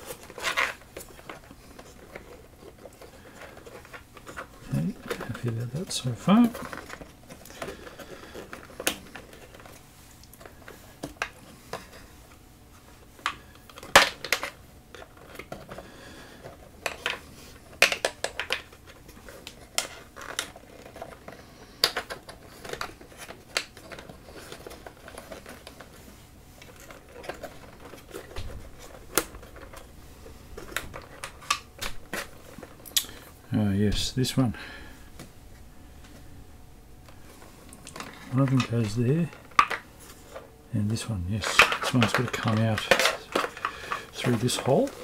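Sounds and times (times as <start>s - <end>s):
hands handling parts clicking: 41.4s - 45.0s.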